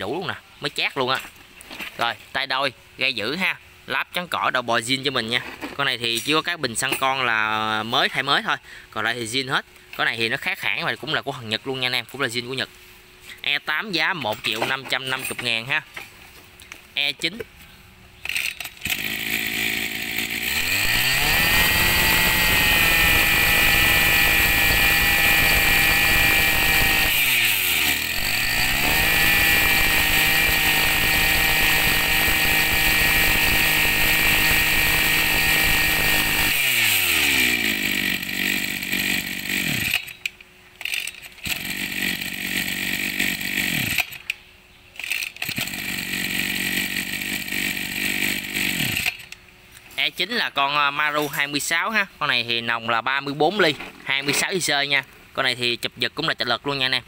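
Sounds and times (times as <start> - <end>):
brush cutter engine revving: 18.2 - 44.4, 45.0 - 49.4.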